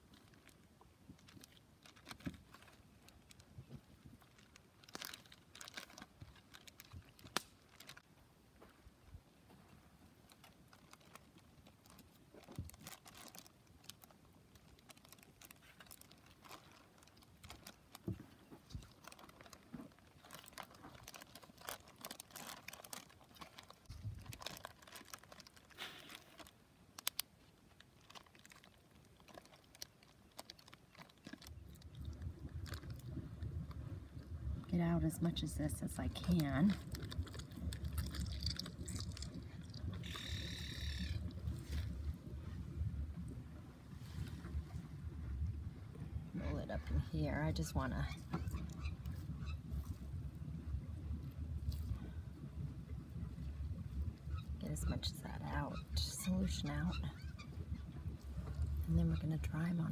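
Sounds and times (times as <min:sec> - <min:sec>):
plastic bag crinkling: 0:01.2 - 0:08.0, 0:10.3 - 0:33.1, 0:36.2 - 0:41.9
low rumble: 0:31.4 - 0:59.9.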